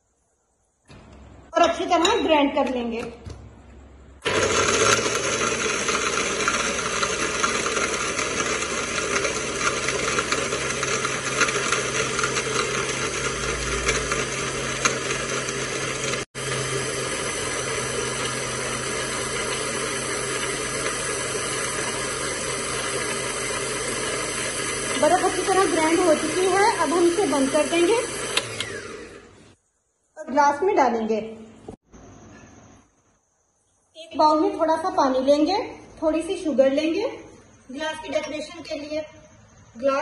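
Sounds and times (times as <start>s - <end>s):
blender crushing ice: 4.2s - 29.3s.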